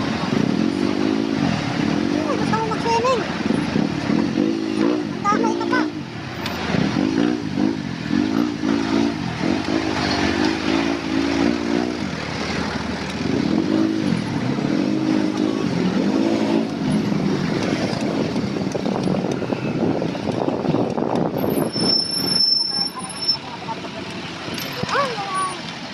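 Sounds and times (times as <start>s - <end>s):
motor vehicle engine revving: 0.0s - 25.9s
traffic rushing: 0.0s - 25.9s
wind noise: 12.9s - 22.8s.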